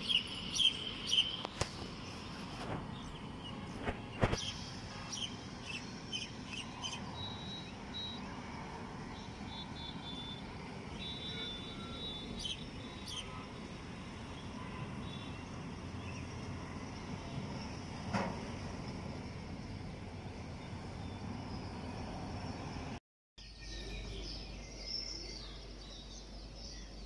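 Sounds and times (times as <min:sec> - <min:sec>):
birds chirping and whistling: 0:00.0 - 0:01.7, 0:04.2 - 0:08.2
distant traffic hum: 0:00.0 - 0:23.0.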